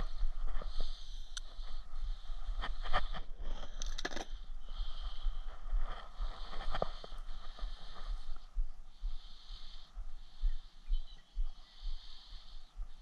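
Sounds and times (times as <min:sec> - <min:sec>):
wind rumbling on microphone: 0:00.0 - 0:09.2.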